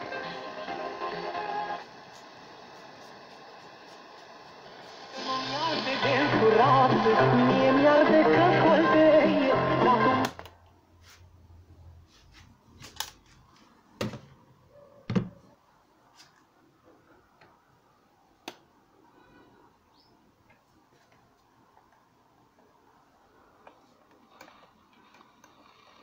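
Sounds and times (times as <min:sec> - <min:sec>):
music from a radio: 0:00.0 - 0:10.5.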